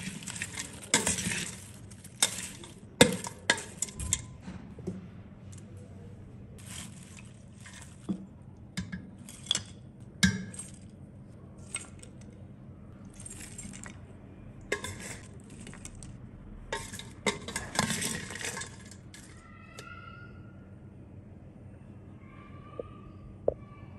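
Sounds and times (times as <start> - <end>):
spoon clinking against steel bowl: 14.7 - 15.9, 16.7 - 19.3.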